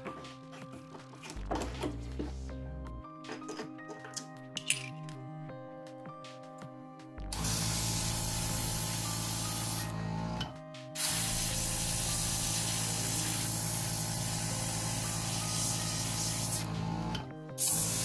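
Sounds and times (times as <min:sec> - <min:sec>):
air hissing from airbrush: 0:07.3 - 0:10.0, 0:11.0 - 0:16.7, 0:17.6 - 0:18.0
compressor humming: 0:07.3 - 0:17.2.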